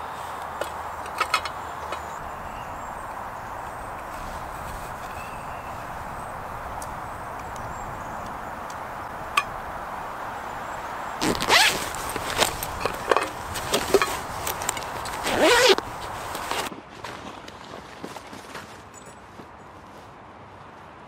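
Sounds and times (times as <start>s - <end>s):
zip rasping: 11.2s - 16.7s.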